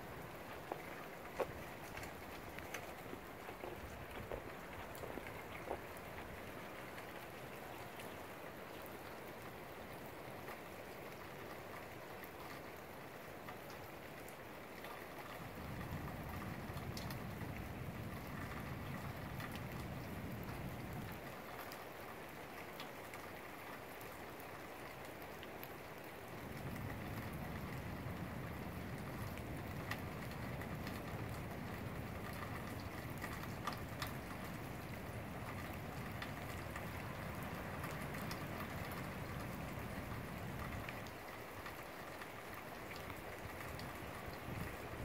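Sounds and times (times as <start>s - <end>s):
rain falling: 0.0s - 45.0s
wind blowing through trees: 25.2s - 45.0s.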